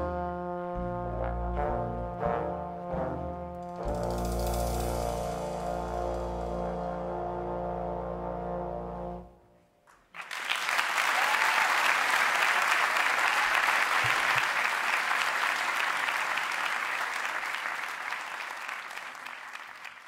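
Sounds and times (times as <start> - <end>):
audience applause: 10.1 - 20.0.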